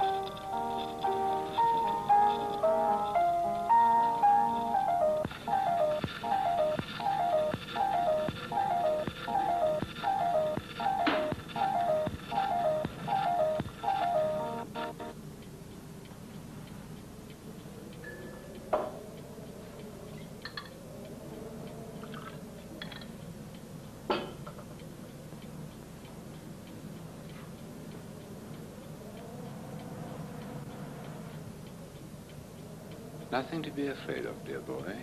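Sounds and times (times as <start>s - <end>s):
clock ticking: 0.0s - 19.5s.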